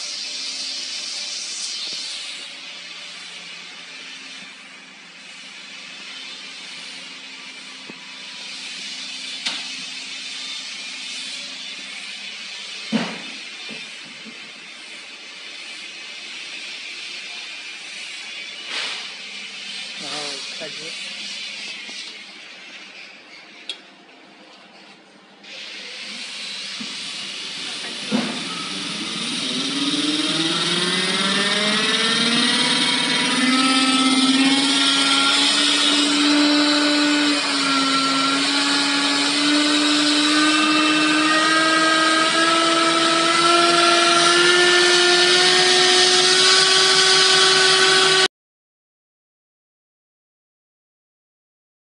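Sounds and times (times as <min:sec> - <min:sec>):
air hiss: 0:00.0 - 0:14.0, 0:17.8 - 0:22.0, 0:25.4 - 0:30.5
air compressor whine: 0:00.0 - 0:48.3.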